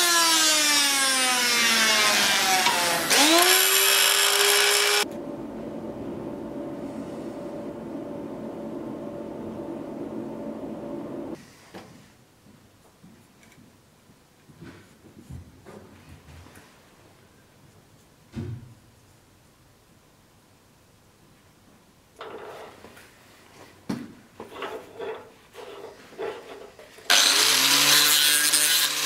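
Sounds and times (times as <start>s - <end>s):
rotary grinder whining on steel: 0.0s - 5.1s, 27.1s - 29.0s
quiet steady hum: 5.0s - 11.6s
faint scrapes: 24.5s - 27.1s.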